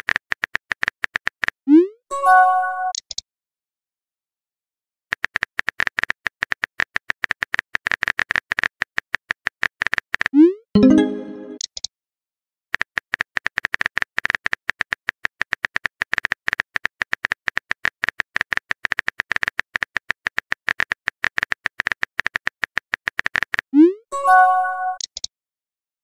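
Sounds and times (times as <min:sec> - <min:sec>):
phone keyboard typing clicks: 0:25.0 - 0:25.3.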